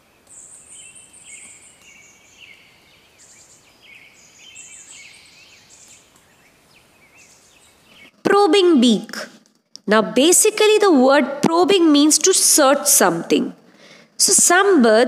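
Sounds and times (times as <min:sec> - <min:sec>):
small birds chirping and trilling: 0:00.0 - 0:08.2.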